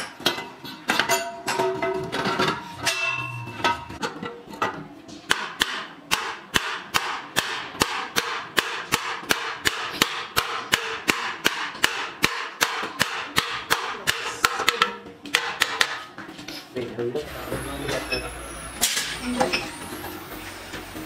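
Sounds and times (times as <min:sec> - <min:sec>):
hammer striking steel hub: 0:00.0 - 0:04.1, 0:05.3 - 0:16.1.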